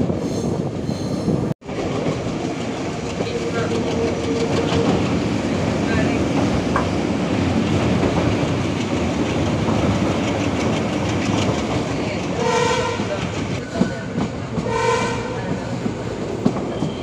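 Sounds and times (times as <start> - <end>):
train rumbling on the track: 0.0 - 17.0
train horn blasts: 12.4 - 13.3, 14.6 - 15.6.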